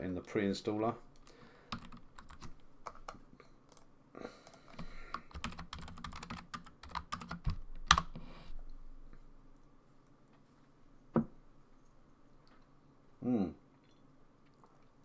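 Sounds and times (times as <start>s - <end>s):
keyboard typing: 1.2s - 8.2s.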